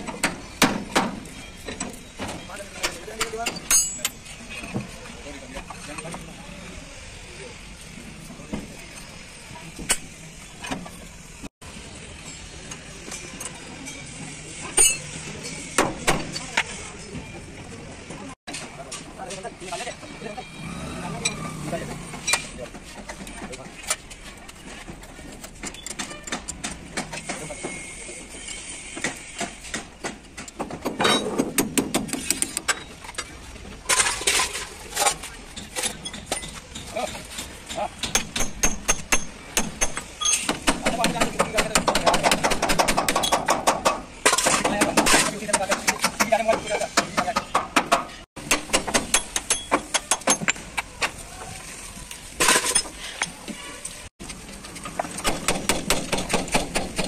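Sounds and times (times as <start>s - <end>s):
hand tools clinking: 0.1s - 5.0s
metal tools clinking: 1.2s - 5.0s, 33.9s - 40.5s, 52.4s - 53.9s
hammer striking steel: 14.7s - 15.1s, 37.7s - 46.4s, 47.0s - 50.6s.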